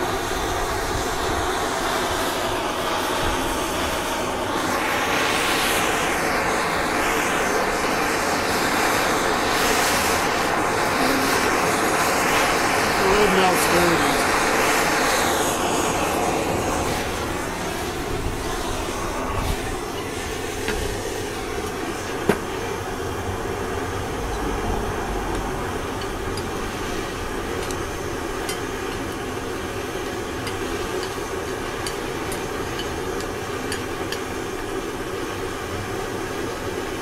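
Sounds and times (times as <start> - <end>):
propane torch roaring: 0.0 - 37.0
metal rod clinking against pan: 30.4 - 34.2.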